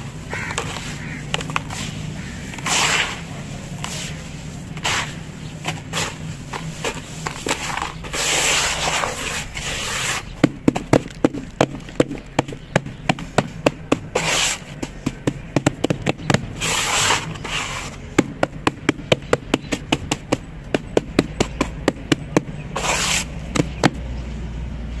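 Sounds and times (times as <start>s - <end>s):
palms slapping wet cement: 0.3s - 24.0s
hands scraping gritty cement: 0.4s - 12.6s, 14.1s - 15.0s, 16.6s - 18.0s, 22.7s - 23.8s.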